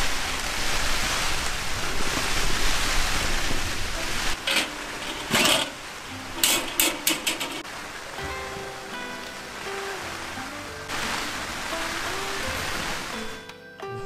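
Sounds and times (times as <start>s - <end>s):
metal clanks: 4.4s - 7.7s.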